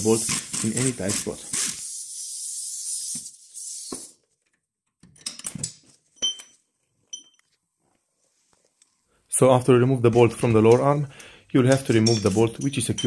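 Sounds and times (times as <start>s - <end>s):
metallic tool clinks: 11.7s - 13.0s.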